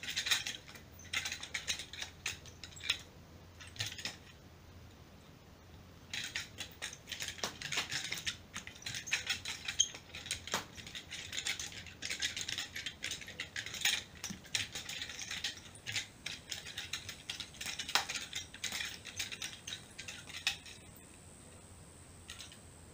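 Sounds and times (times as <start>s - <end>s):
nunchaku chain rattling and clicking: 0.0s - 4.4s, 6.1s - 21.1s.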